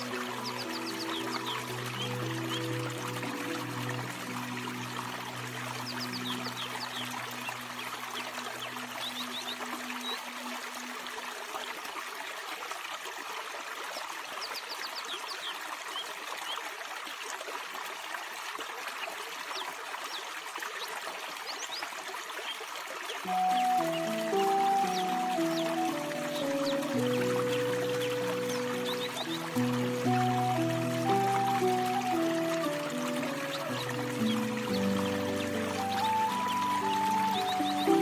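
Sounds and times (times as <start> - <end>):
soft music: 0.0 - 11.8, 23.2 - 38.0
stream trickling over rocks: 0.0 - 38.0.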